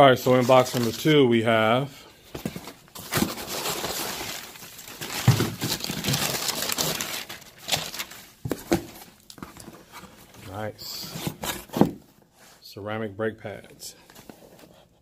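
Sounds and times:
packing paper rustling: 0:00.2 - 0:01.2, 0:02.3 - 0:11.9.

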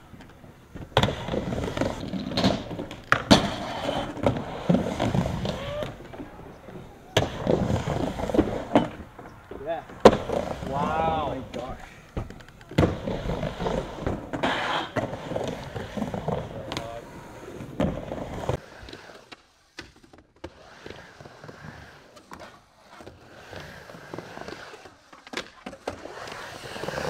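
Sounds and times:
skateboard clacking on ramp: 0:00.0 - 0:21.5
skateboard wheels rolling on wood: 0:00.0 - 0:27.0.

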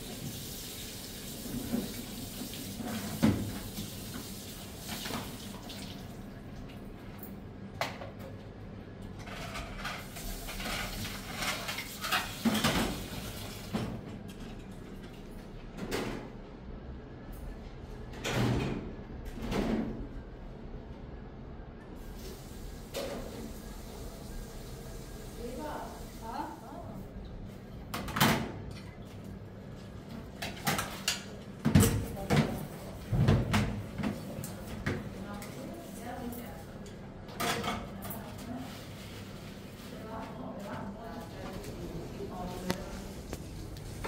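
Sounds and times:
kitchen knocks and clatter: 0:09.3 - 0:13.1, 0:30.4 - 0:35.1.

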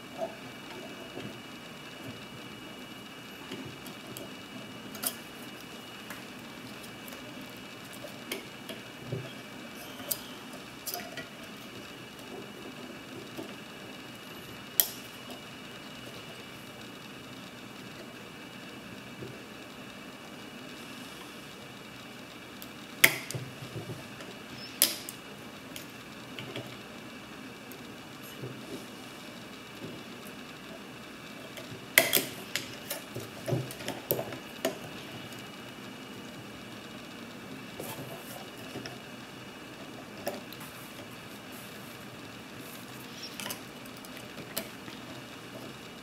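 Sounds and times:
background hum: 0:00.0 - 0:46.0.

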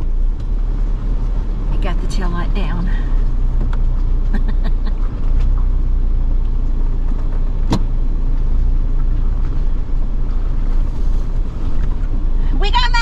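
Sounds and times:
engine rumbling: 0:00.0 - 0:13.0.

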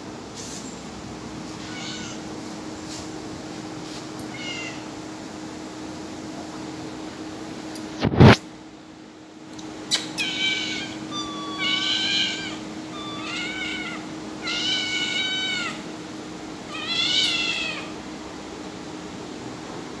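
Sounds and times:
cat meowing: 0:01.6 - 0:02.2, 0:04.2 - 0:04.9, 0:10.2 - 0:15.9, 0:16.7 - 0:18.0.

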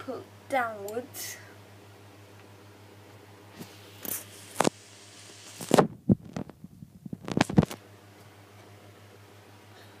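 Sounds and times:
device handling noise: 0:05.5 - 0:07.8.

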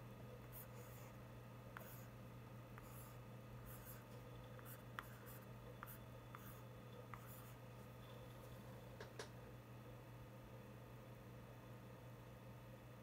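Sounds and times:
steady low hum: 0:00.0 - 0:13.0
stylus scratching on tablet: 0:00.4 - 0:02.2, 0:02.8 - 0:07.6.

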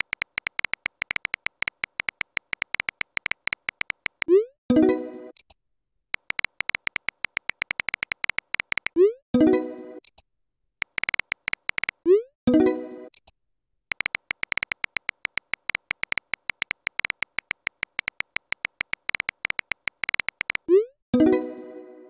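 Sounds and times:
phone keyboard typing clicks: 0:00.0 - 0:04.4, 0:06.2 - 0:09.1, 0:10.8 - 0:12.1, 0:13.9 - 0:20.8.

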